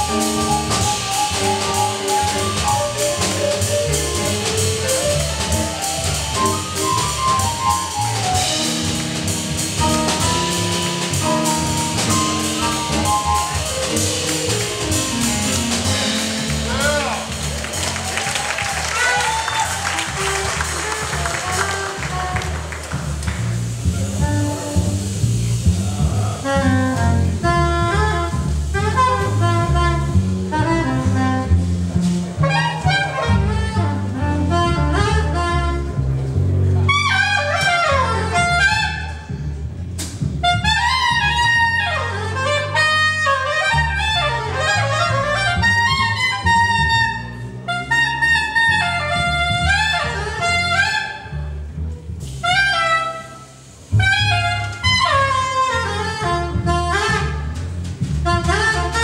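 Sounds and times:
electric keyboard: 0.0 - 17.5
drums: 0.0 - 59.0
upright bass: 0.0 - 59.0
soprano saxophone solo: 18.0 - 22.9, 26.2 - 36.2, 36.8 - 39.3, 40.4 - 51.5, 52.4 - 59.0.

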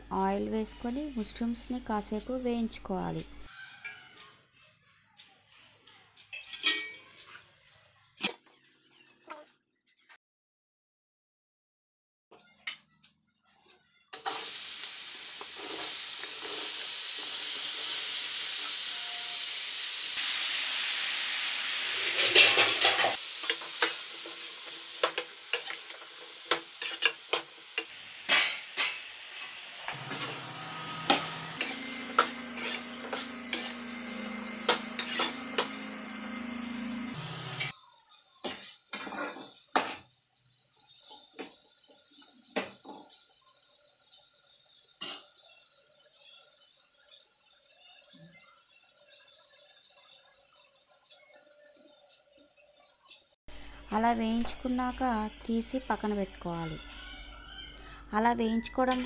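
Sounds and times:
mushrooms sizzling in hot oil: 14.2 - 39.8, 40.4 - 56.8
metal spoon scraping pan: 22.0 - 30.4, 31.0 - 36.3.

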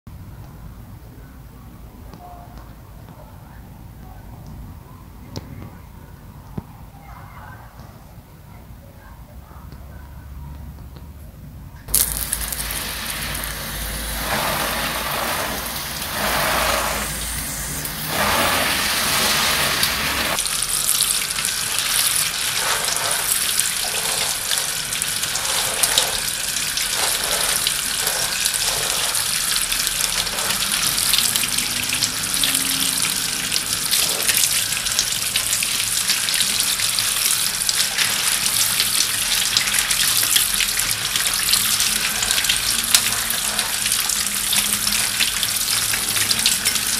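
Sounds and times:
water spray pattering on plants: 11.9 - 46.9.

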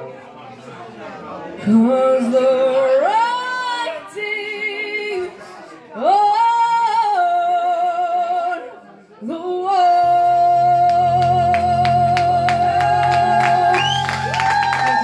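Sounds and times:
person singing long notes: 9.6 - 15.0
backing music: 10.8 - 15.0.

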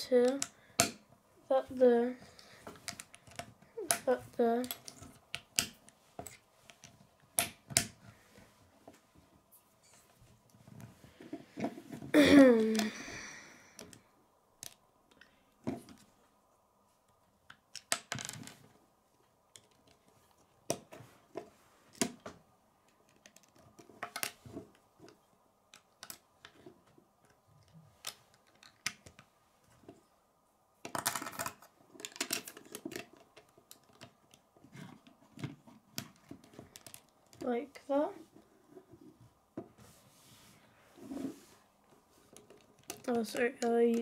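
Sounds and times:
plastic bricks clicking and rattling: 30.8 - 37.5, 42.3 - 44.0.

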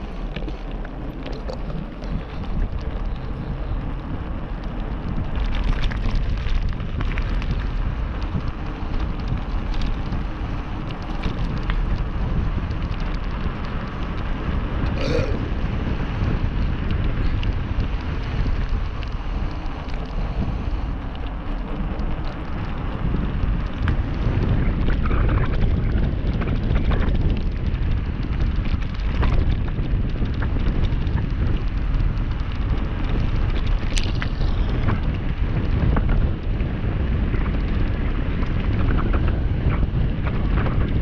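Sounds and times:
tyres rolling on gravel: 0.0 - 41.0
wind buffeting microphone: 0.0 - 41.0
stones clicking and knocking: 0.2 - 3.3.

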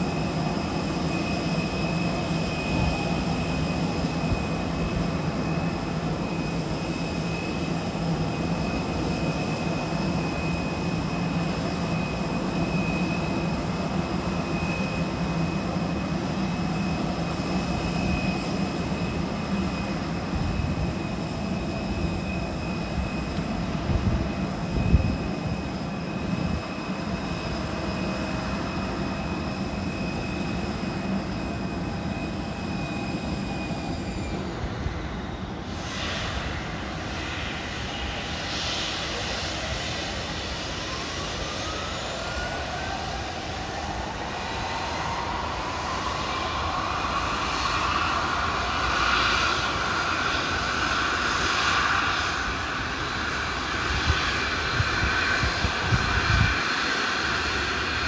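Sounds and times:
jet engine spooling up: 0.0 - 58.0
jet engine whining: 0.0 - 58.0.

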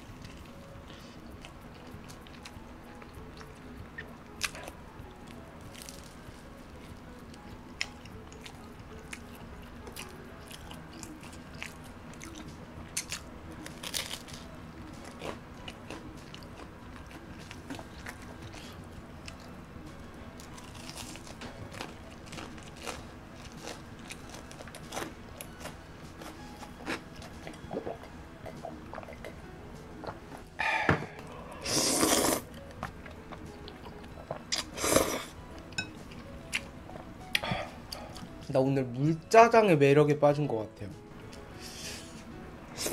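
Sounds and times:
crunching and chewing crisp food: 4.3 - 6.2, 7.3 - 19.5, 20.4 - 29.4, 31.4 - 35.4
noodle slurps: 31.6 - 32.5, 34.6 - 35.3.

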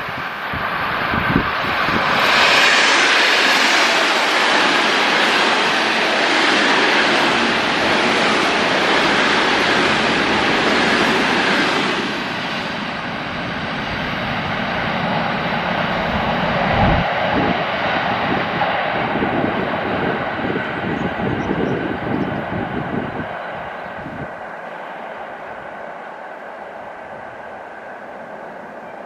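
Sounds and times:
electric train approaching: 0.0 - 29.0
electric train passing: 0.0 - 29.0.

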